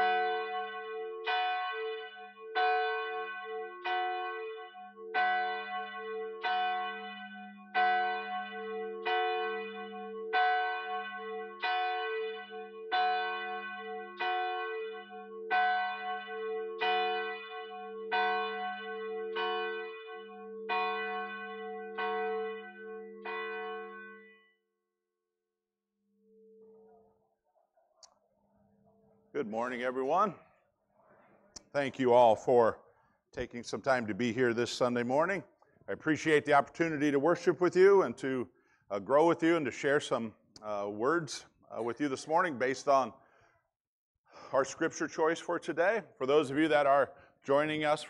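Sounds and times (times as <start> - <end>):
church bells ringing: 0.0 - 24.5.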